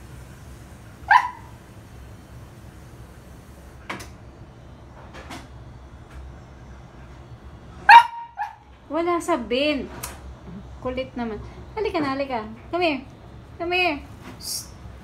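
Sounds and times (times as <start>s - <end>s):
dog barking sharply: 1.1s - 1.5s, 7.9s - 8.6s.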